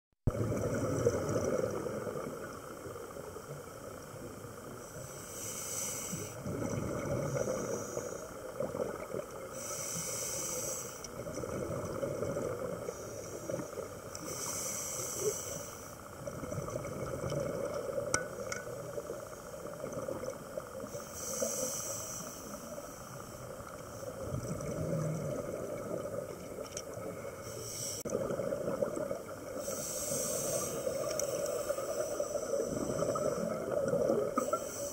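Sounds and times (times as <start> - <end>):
low bubbling rumble: 0.3 - 3.1, 6.4 - 7.4, 24.1 - 27.3
regulator breathing hiss: 4.8 - 6.4, 7.2 - 8.6, 9.4 - 11.2, 12.9 - 16.2, 20.8 - 24.1, 27.4 - 28.1, 29.6 - 34.9.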